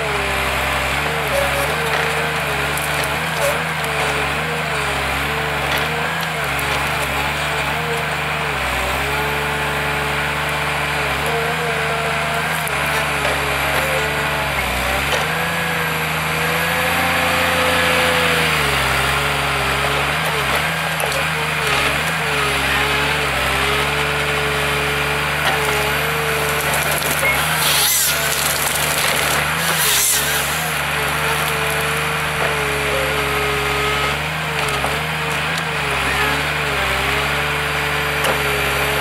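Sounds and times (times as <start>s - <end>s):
diesel engine under hydraulic load: 0.0s - 39.0s
wood cracking: 1.0s - 4.5s, 25.3s - 32.6s.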